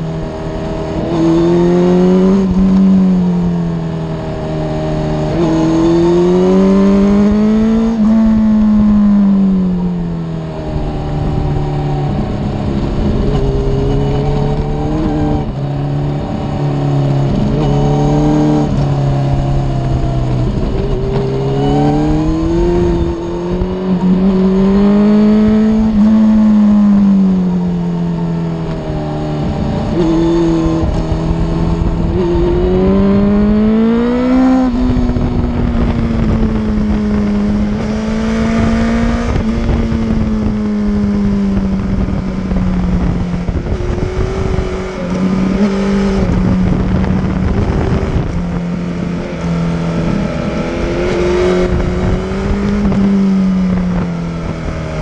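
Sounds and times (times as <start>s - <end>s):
motorcycle engine revving: 0.0s - 55.0s
wind rushing: 10.6s - 27.3s, 28.8s - 55.0s.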